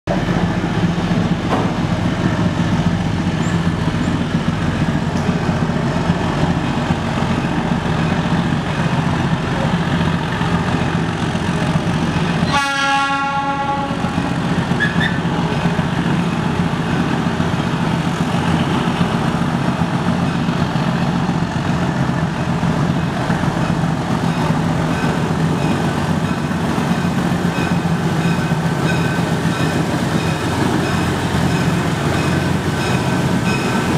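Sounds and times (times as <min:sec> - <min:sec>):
diesel locomotive engine drone: 0:00.1 - 0:33.9
train horn blast: 0:12.4 - 0:14.4.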